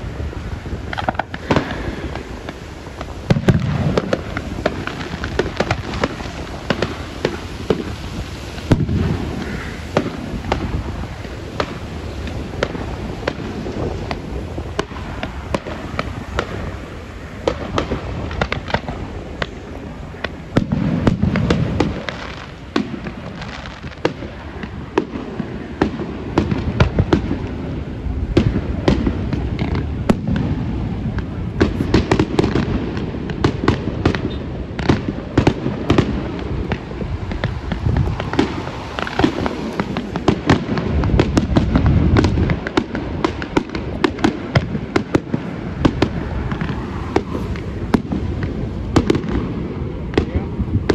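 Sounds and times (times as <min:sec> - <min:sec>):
distant firework booms and crackling: 0:00.0 - 0:50.9.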